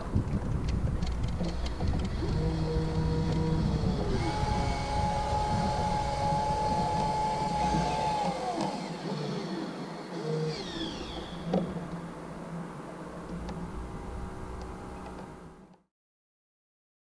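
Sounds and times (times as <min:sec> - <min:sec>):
wind buffeting microphone: 0:00.0 - 0:08.8
winch motor whining: 0:01.2 - 0:12.0.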